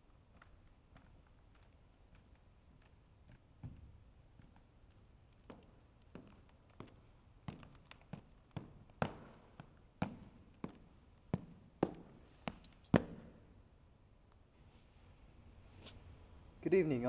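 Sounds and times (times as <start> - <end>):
footsteps of hard-soled shoes: 0.3 - 13.4.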